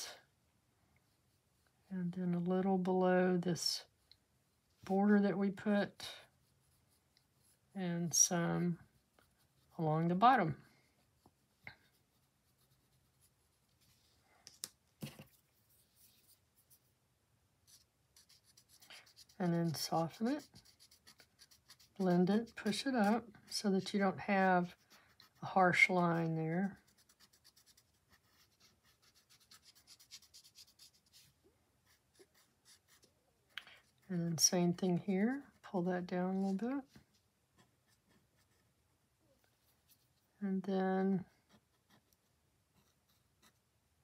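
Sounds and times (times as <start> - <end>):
pencil taps and scrapes: 14.4 - 15.4
pencil scratching on paper: 17.7 - 33.1, 37.6 - 38.7, 41.3 - 43.6.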